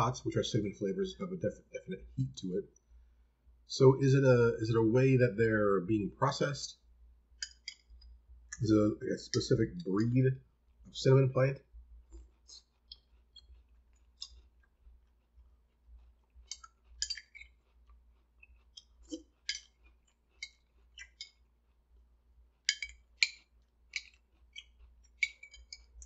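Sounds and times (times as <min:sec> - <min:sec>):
metal spoon clinking in ceramic bowl: 0:17.0 - 0:17.5.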